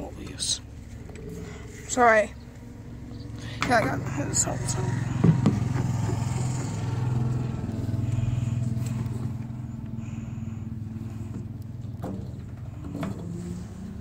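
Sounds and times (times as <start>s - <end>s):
motor humming: 0.6s - 14.0s.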